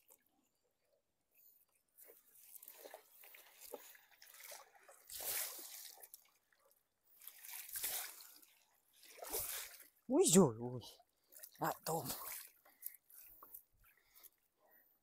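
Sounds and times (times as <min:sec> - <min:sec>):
water dripping and sloshing: 0:01.6 - 0:10.1, 0:10.8 - 0:14.8
splashy swishes: 0:02.6 - 0:06.1, 0:07.2 - 0:09.9.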